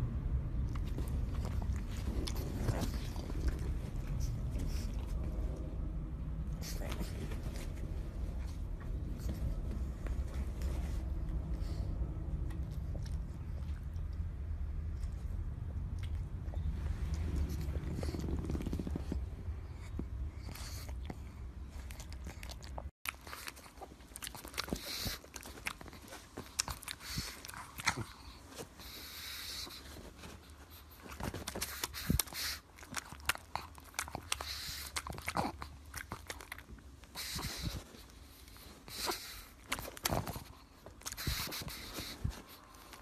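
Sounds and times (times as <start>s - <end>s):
dog chewing and crunching: 0.6s - 5.6s, 14.9s - 43.0s.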